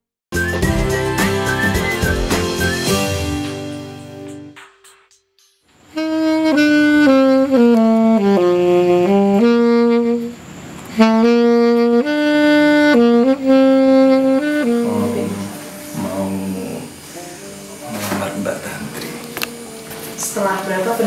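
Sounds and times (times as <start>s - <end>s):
saxophone slow melody: 5.8s - 21.0s.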